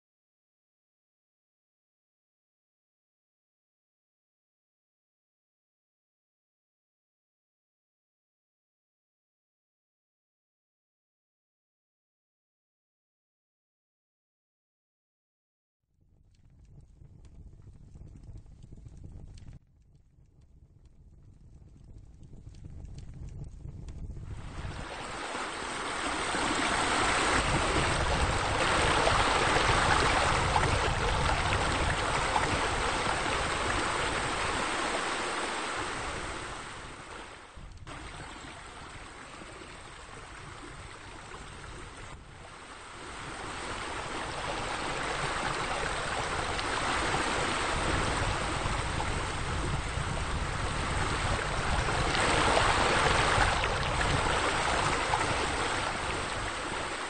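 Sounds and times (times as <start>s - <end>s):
water splashing from pool waterfall: 24.6s - 36.8s, 37.4s - 42.2s.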